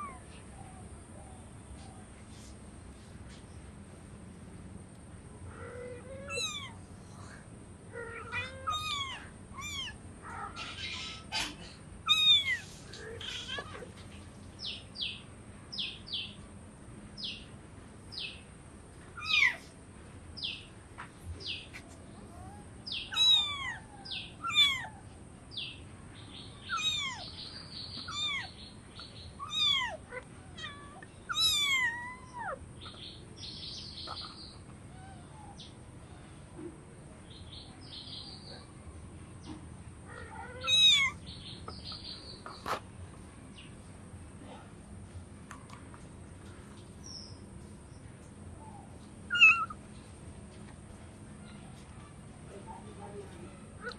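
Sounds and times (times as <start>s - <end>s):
kitten meowing: 5.6s - 6.8s, 8.0s - 13.9s, 19.2s - 19.6s, 22.3s - 25.0s, 26.6s - 27.4s, 28.0s - 28.6s, 29.4s - 32.6s, 40.5s - 41.2s, 49.3s - 49.8s
kitten high chirps: 6.2s - 6.8s, 8.2s - 10.0s, 10.6s - 13.9s, 19.2s - 19.6s, 22.4s - 24.9s, 26.6s - 27.4s, 28.0s - 32.6s, 40.6s - 41.2s, 49.3s - 49.8s.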